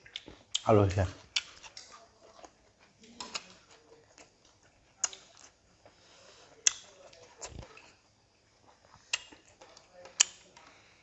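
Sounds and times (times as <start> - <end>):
fingers picking food from plates: 0.0 - 11.0
people chewing: 0.0 - 11.0.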